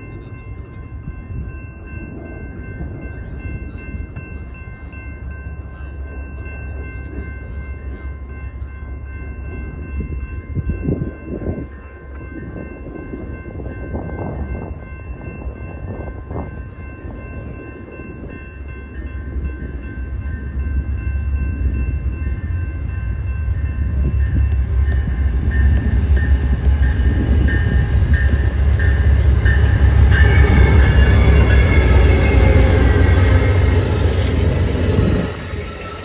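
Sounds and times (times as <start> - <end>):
bell ringing: 0.0 - 36.0
diesel locomotive rumble: 19.5 - 36.0.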